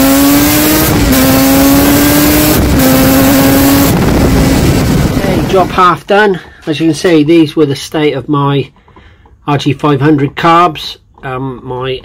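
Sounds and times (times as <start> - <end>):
motorcycle engine accelerating: 0.0 - 5.8.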